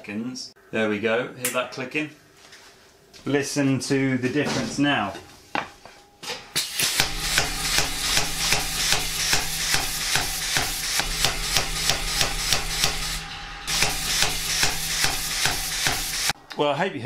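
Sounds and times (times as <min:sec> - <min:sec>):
steady low hum: 0:03.9 - 0:17.0
power hammer striking: 0:06.4 - 0:16.4
air hiss: 0:06.6 - 0:16.4.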